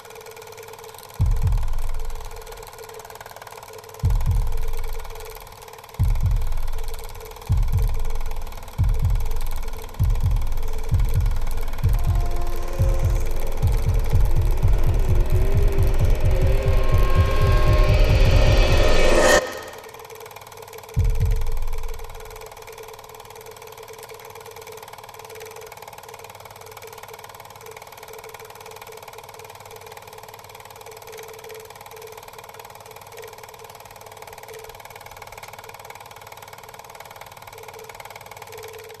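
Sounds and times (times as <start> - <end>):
steady pulsing drone: 6.2 - 20.0.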